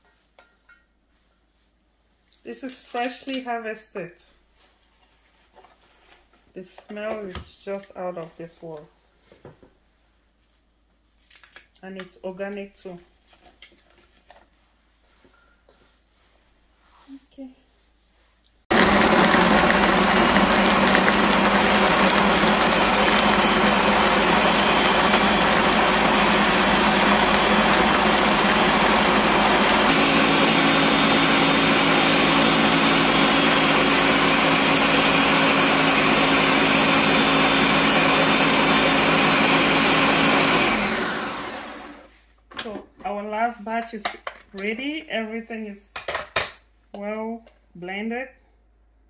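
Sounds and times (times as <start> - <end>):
blender motor whirring: 18.7 - 42.1.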